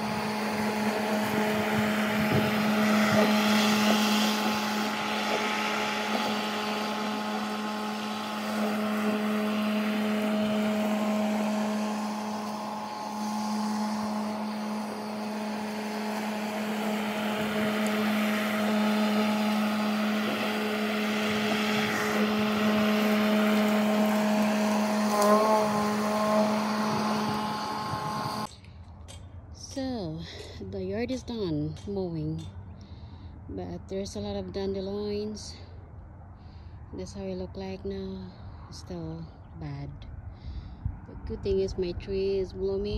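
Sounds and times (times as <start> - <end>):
lawn mower cutting grass: 0.0 - 28.5.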